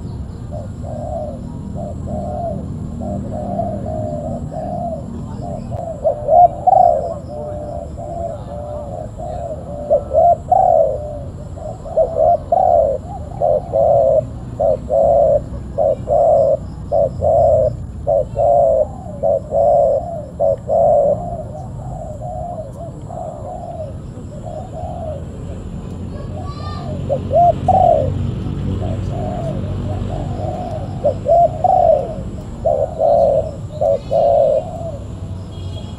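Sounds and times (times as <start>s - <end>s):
dove cooing: 0.0s - 35.9s
small birds chirping: 0.0s - 35.9s.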